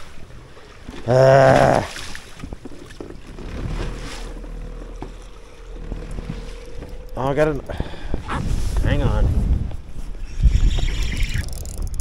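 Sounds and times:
water washing against hull: 0.0 - 12.0
steady low hum: 3.4 - 10.4
wind on microphone: 3.4 - 12.0.

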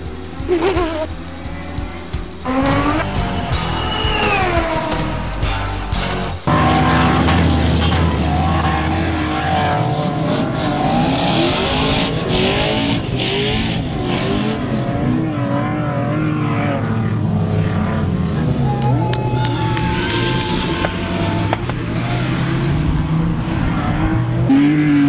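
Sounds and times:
car engines revving hard: 0.0 - 25.0.

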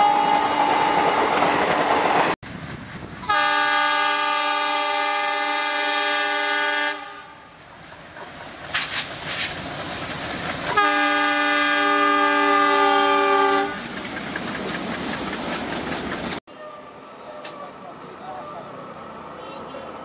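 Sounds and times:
locomotive chord horn blasts: 3.2 - 7.4, 10.7 - 13.8
wagons clattering over rail joints: 7.6 - 10.8, 13.7 - 16.4
locomotive engine running: 13.2 - 16.4.

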